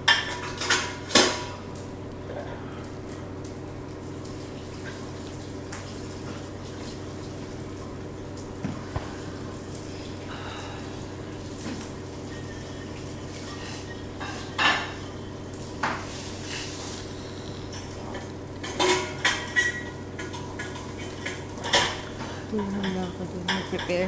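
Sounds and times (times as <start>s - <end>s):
room hum: 0.0s - 24.0s.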